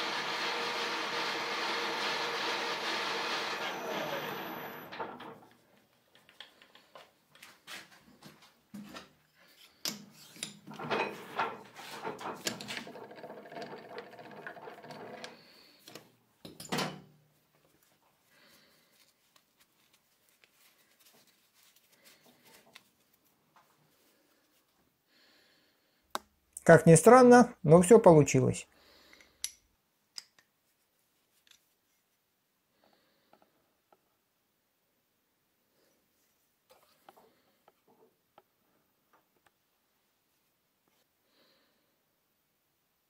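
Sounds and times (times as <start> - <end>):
lathe running and winding down: 0.0 - 5.4, 12.0 - 15.8.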